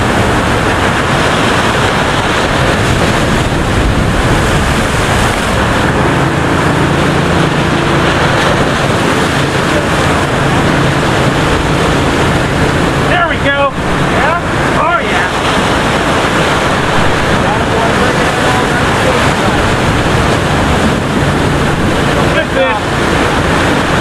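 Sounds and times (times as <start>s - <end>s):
surf breaking over rocks: 0.0s - 24.0s
wind buffeting microphone: 0.0s - 24.0s.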